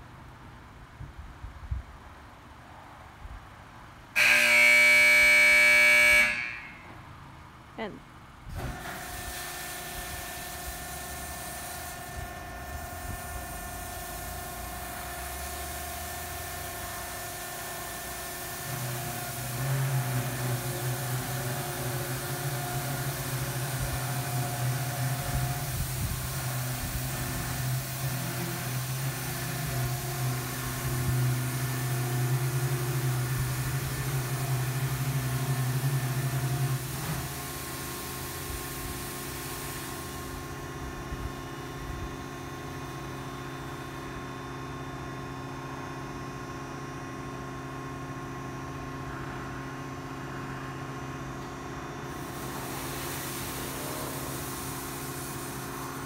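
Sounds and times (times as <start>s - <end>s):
car wash machinery humming: 2.0s - 56.0s
hiss: 8.6s - 40.6s, 52.1s - 56.0s.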